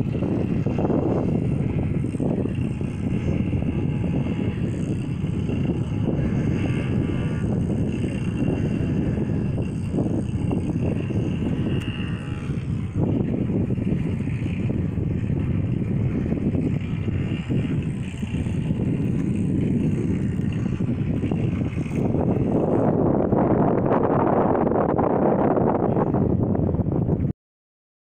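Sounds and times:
wind buffeting microphone: 0:00.0 - 0:27.3.

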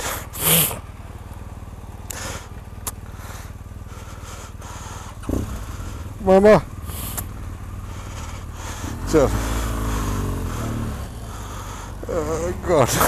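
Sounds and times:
motorcycle engines idling: 0:00.0 - 0:13.0
short hiss: 0:06.9 - 0:07.3.

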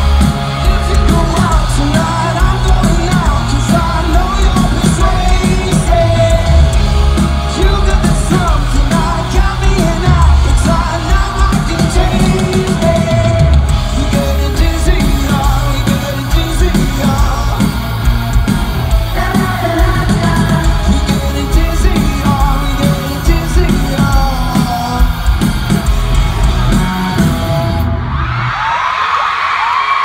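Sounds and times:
man singing lead vocal: 0:00.0 - 0:25.8
live rock band: 0:00.0 - 0:30.0.

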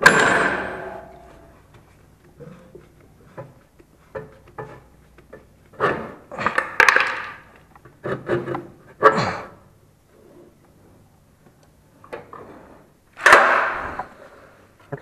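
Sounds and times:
metal clattering: 0:00.0 - 0:07.6
metal knocks and scraping: 0:00.0 - 0:08.9.

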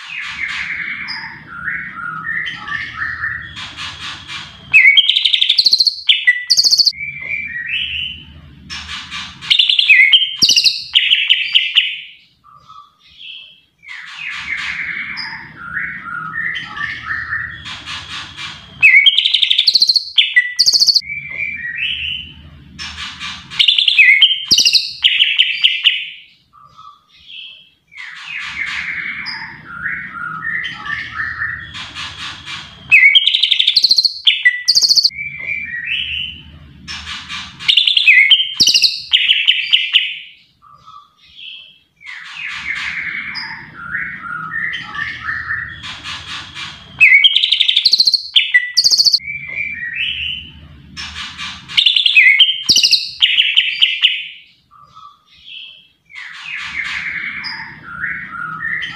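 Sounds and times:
bird singing whistles and trills: 0:04.7 - 0:08.2, 0:09.5 - 0:17.7, 0:18.8 - 0:22.2, 0:23.6 - 0:31.8, 0:32.9 - 0:36.3, 0:37.7 - 0:45.9, 0:47.0 - 0:50.4, 0:51.8 - 0:58.9.

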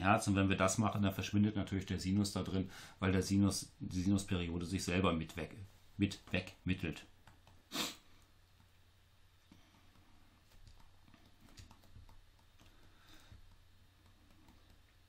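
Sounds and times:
stylus tapping and scratching: 0:06.0 - 0:08.8, 0:09.5 - 0:15.0.

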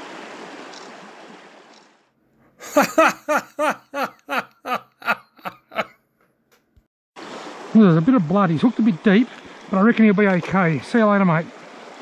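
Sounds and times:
rushing creek water: 0:00.0 - 0:02.1, 0:07.2 - 0:12.0
person laughing heartily: 0:02.6 - 0:06.0.

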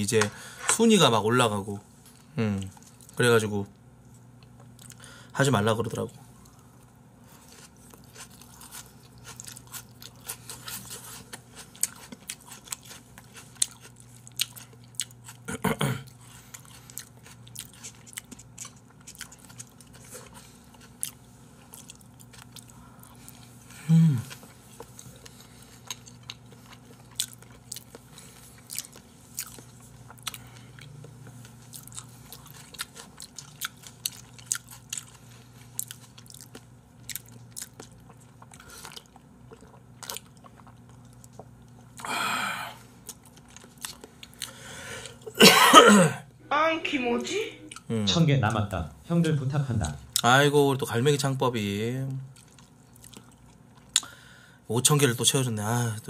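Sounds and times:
low steady hum: 0:00.0 - 0:56.0
close chewing and biting: 0:07.3 - 0:23.6, 0:24.3 - 0:42.1, 0:43.0 - 0:45.2, 0:52.3 - 0:54.1.

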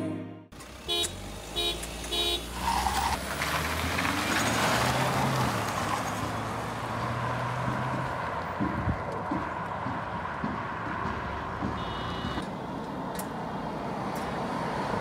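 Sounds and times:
cars accelerating past: 0:00.5 - 0:11.8
tyre and wind noise: 0:05.0 - 0:12.9.

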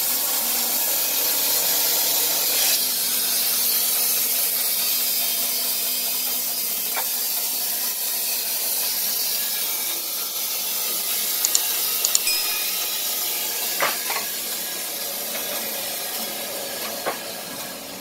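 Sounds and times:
light clicks: 0:11.5 - 0:12.3
brief ding: 0:11.5 - 0:13.2.

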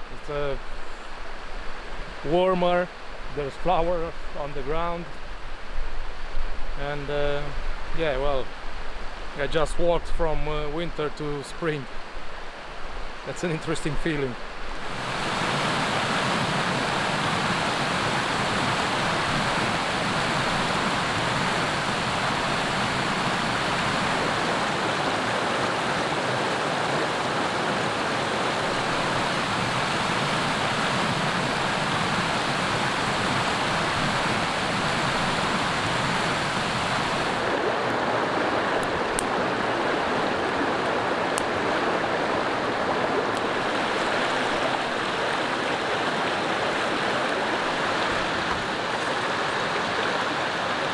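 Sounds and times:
stream flowing over rocks: 0:10.3 - 0:50.9.

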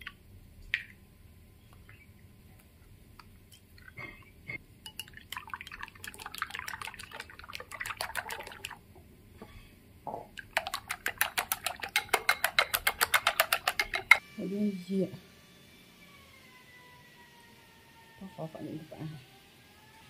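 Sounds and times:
chopsticks whisking eggs in a bowl: 0:04.8 - 0:08.8, 0:10.4 - 0:14.2
eggs dropping into a bowl: 0:10.3 - 0:14.2.

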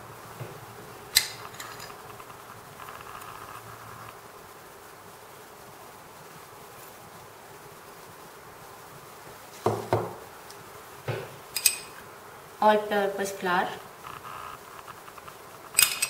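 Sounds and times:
faint buzzing hum: 0:00.0 - 0:16.0
bowls knocking on counter: 0:09.6 - 0:10.2
spoon clinking: 0:11.6 - 0:12.0.

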